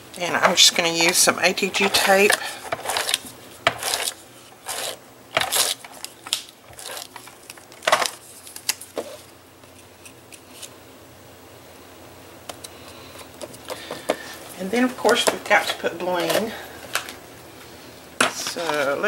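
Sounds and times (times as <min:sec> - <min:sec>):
cardstock handling: 0:01.8 - 0:10.7
tape gun rasping strokes: 0:02.3 - 0:05.8.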